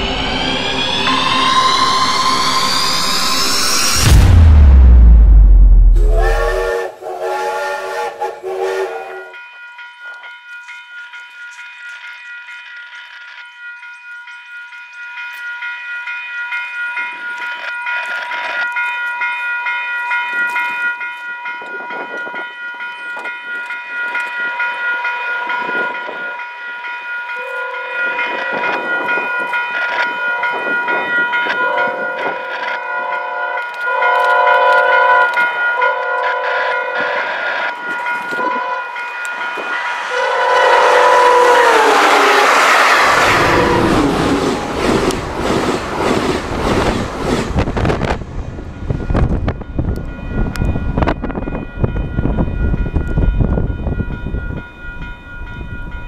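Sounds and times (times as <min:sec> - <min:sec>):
crossing warning bell ringing: 0:00.0 - 0:04.3, 0:09.1 - 0:45.3, 0:48.8 - 0:56.0
train rushing by: 0:00.0 - 0:09.4, 0:27.8 - 0:56.0
train horn blasts: 0:05.9 - 0:09.4, 0:27.4 - 0:28.7, 0:30.0 - 0:44.4
wheel and rail noise: 0:27.5 - 0:56.0.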